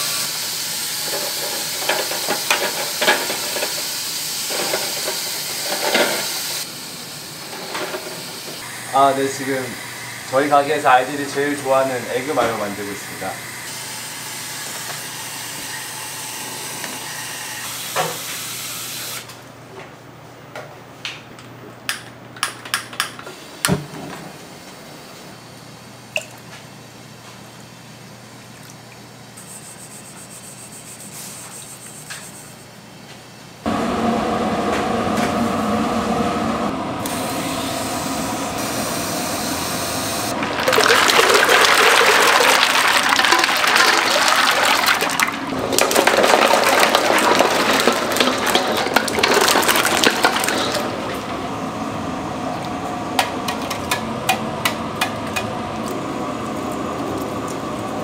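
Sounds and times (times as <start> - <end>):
water running hard: 37.0 - 51.3.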